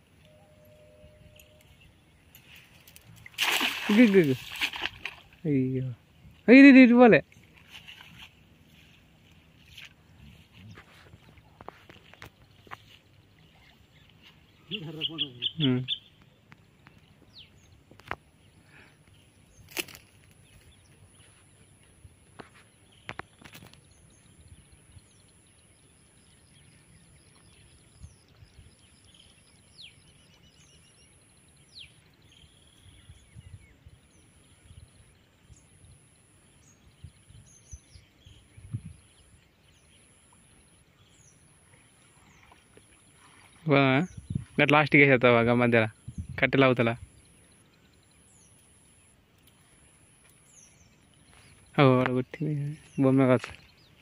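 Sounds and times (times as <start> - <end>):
thin high steady tone: 0.2 - 1.9
faint bird chirps: 0.2 - 2.8, 12.0 - 19.7.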